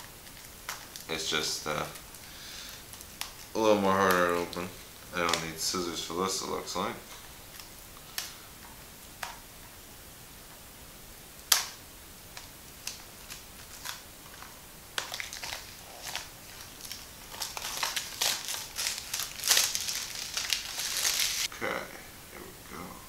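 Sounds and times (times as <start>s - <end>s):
plastic wrap snapping: 0.0s - 5.6s, 7.1s - 8.4s, 11.4s - 21.5s
plastic wrap crinkling: 0.0s - 9.4s, 11.4s - 21.5s.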